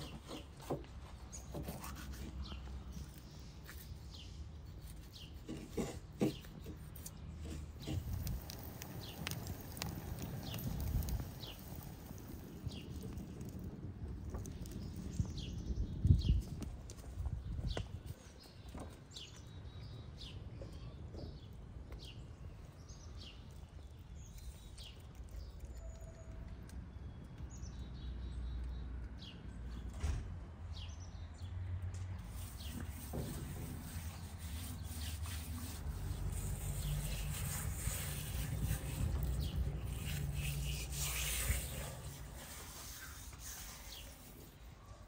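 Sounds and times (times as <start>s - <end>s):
small birds chirping: 0.0s - 29.9s, 30.7s - 45.0s
low wind rumble: 7.2s - 24.3s, 32.2s - 44.3s
rustling hiss: 32.2s - 44.6s.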